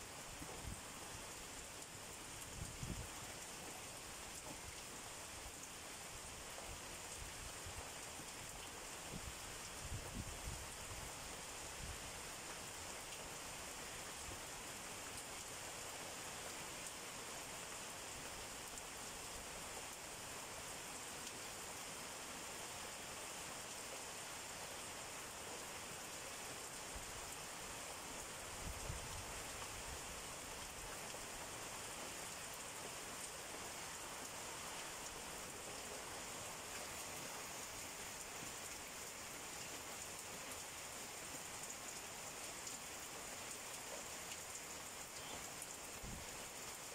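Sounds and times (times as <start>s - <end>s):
heavy rain on leaves: 0.0s - 46.9s.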